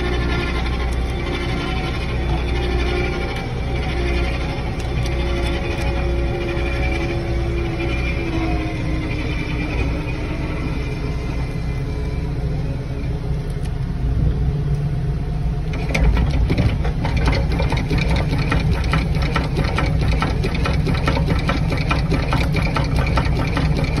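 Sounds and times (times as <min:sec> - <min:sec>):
auger mechanical clatter: 0:00.0 - 0:10.3, 0:15.6 - 0:24.0
diesel engine running: 0:00.0 - 0:24.0.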